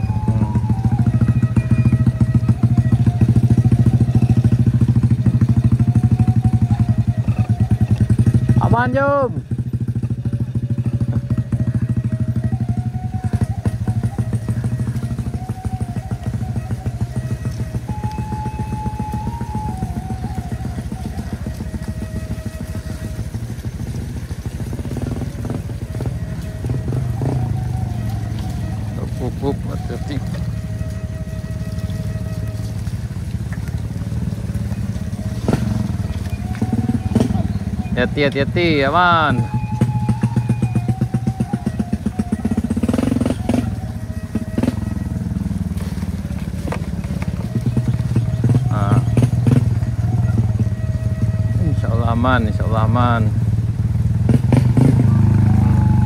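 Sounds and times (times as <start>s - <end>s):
bike knocking and rattling: 0.0s - 55.1s
small motorcycle engine running: 0.0s - 56.0s.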